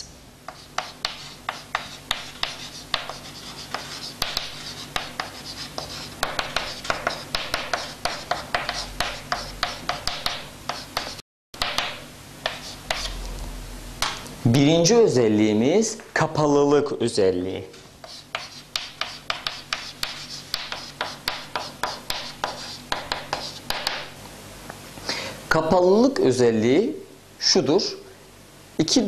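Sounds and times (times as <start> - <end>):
chalk writing on a blackboard: 0.5 - 13.2, 18.0 - 24.1.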